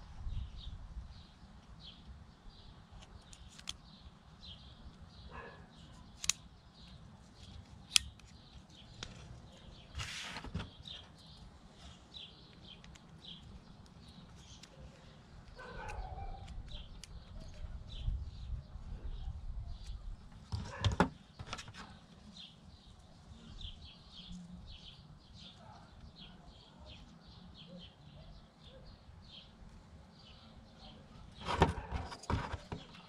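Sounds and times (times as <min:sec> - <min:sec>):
rustle: 0:08.6 - 0:10.7.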